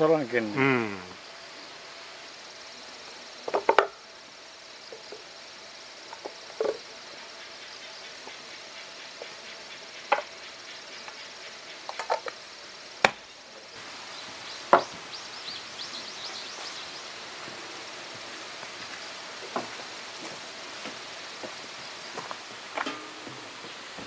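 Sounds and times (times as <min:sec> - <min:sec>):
wood knocking on wood: 0:03.5 - 0:03.9, 0:14.7 - 0:15.0.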